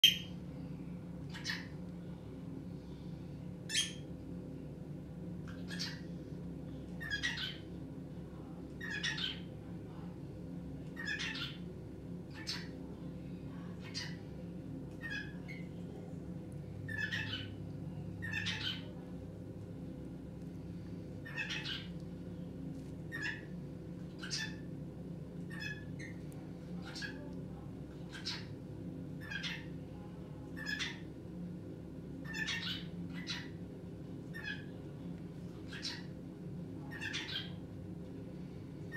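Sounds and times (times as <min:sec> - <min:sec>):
steady low hum: 0:00.0 - 0:38.9
cockatiel chirping calls: 0:01.3 - 0:01.7, 0:03.7 - 0:04.0, 0:05.6 - 0:06.0, 0:07.0 - 0:07.6, 0:08.8 - 0:09.4, 0:11.0 - 0:11.6, 0:12.3 - 0:12.7, 0:16.9 - 0:17.6, 0:18.2 - 0:18.9, 0:21.2 - 0:21.9, 0:23.1 - 0:23.5, 0:24.2 - 0:24.6, 0:25.5 - 0:26.2, 0:28.1 - 0:28.5, 0:29.2 - 0:29.7, 0:30.6 - 0:31.0, 0:32.2 - 0:33.6, 0:34.3 - 0:34.7, 0:35.7 - 0:36.1, 0:36.9 - 0:37.5
cockatiel calling: 0:16.9 - 0:17.5, 0:18.2 - 0:18.9, 0:21.2 - 0:21.9, 0:24.2 - 0:24.6, 0:29.2 - 0:29.7, 0:32.2 - 0:33.5, 0:35.7 - 0:36.1, 0:36.9 - 0:37.5.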